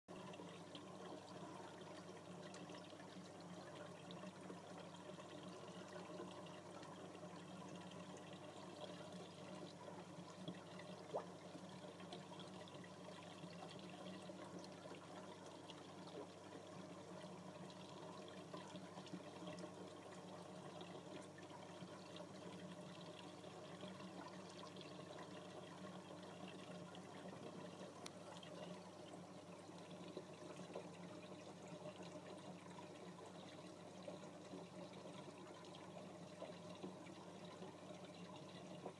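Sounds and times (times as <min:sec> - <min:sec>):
aquarium water trickling: 0:00.1 - 0:38.9
small tick: 0:28.0 - 0:28.8.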